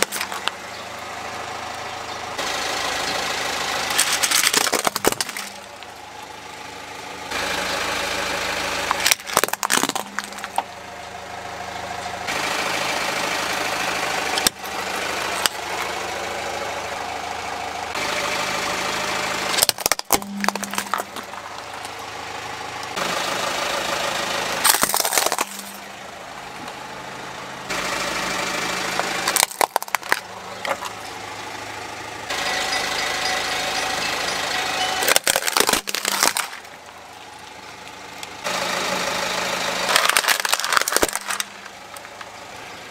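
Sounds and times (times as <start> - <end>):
plastic toys cracking: 0.0 - 0.6, 3.9 - 5.9, 8.9 - 10.7, 19.6 - 22.0, 24.6 - 25.8, 29.2 - 31.0, 35.0 - 37.6, 39.8 - 42.3
car engine idling: 0.0 - 42.9.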